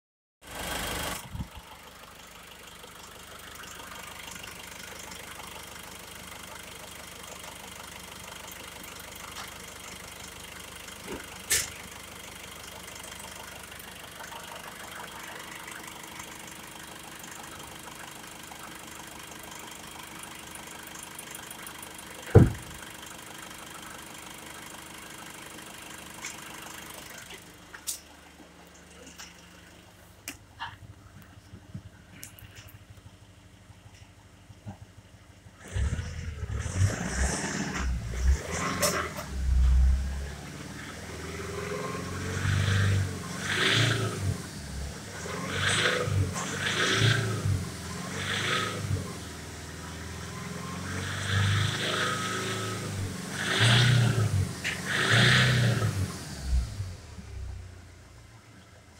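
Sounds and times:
diesel engine idling: 0.5s - 36.6s
loud thump: 22.3s - 22.8s.

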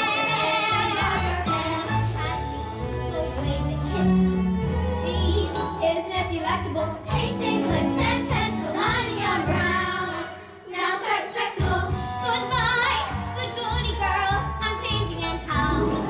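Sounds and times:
keyboard accompaniment: 0.0s - 10.6s.

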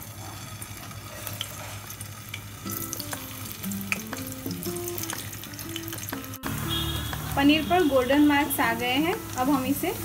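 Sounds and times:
food frying in hot oil: 0.0s - 10.0s
simple background melody: 2.6s - 10.0s.

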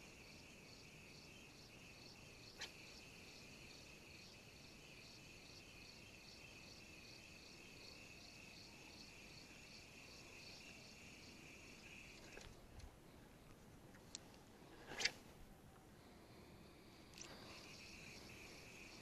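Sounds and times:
insect trill: 0.0s - 12.6s, 16.4s - 19.0s.

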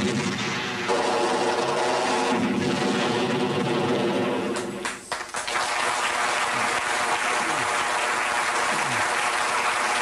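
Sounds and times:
audience applause: 4.6s - 10.0s.

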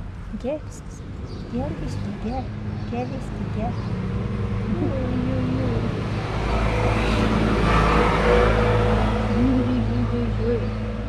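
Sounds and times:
car passing: 0.0s - 11.0s.

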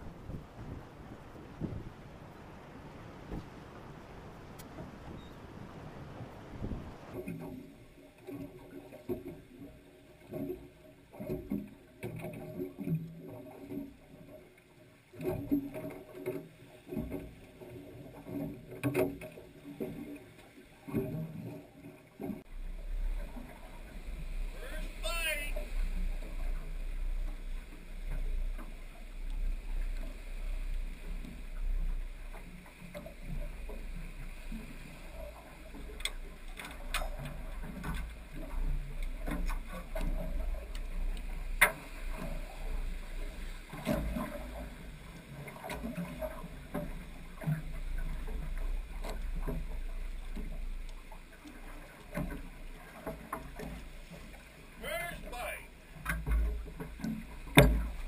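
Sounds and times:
water lapping against boat hull: 0.0s - 58.0s
sharp knocks and clicks: 56.1s - 58.0s.

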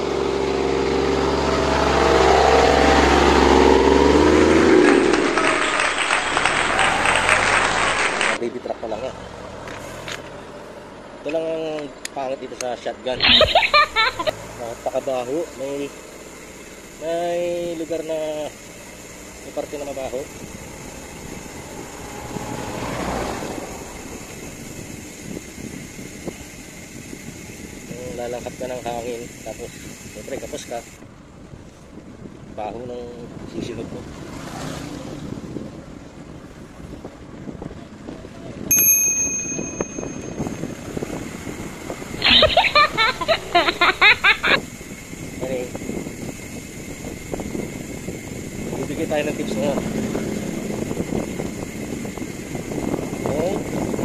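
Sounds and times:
truck engine passing by: 0.0s - 8.4s, 19.0s - 25.4s, 34.1s - 35.6s, 48.0s - 51.9s
van passing by: 0.0s - 11.6s, 13.0s - 29.2s, 33.0s - 38.7s, 39.7s - 54.0s
crackling noise: 4.8s - 8.4s
wind on microphone: 34.8s - 38.8s, 39.4s - 54.0s.

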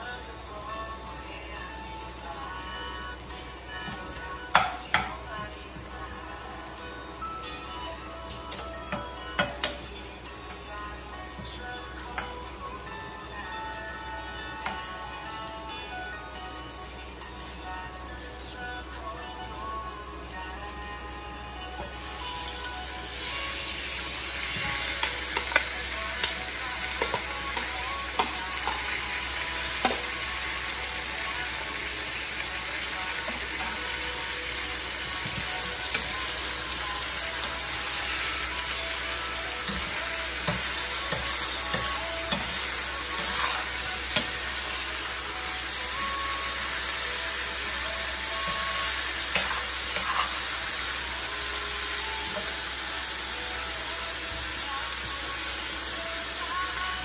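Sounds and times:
meat sizzling in oil: 22.0s - 57.0s.

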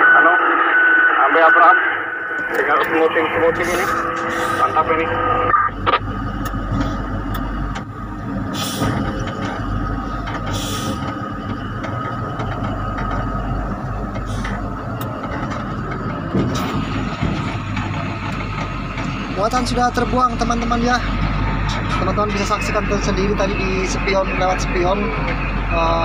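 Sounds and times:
diesel engine running: 2.0s - 26.0s
air hisses: 8.5s - 9.0s, 10.5s - 11.1s.

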